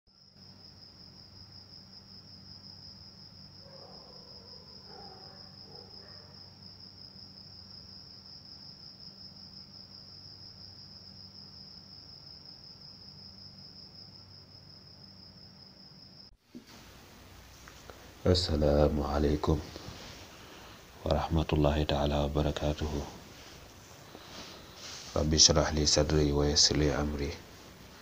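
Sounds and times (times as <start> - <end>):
cricket trill: 0.1 - 16.4.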